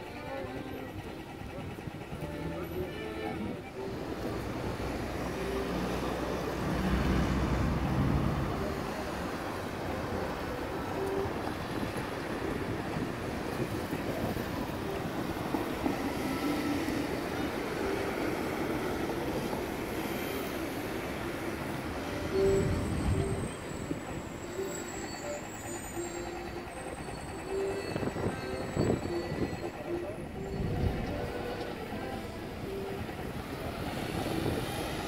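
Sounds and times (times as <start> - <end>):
passing vehicle low rumble: 0.8 - 15.5
cars driving past: 3.8 - 14.1.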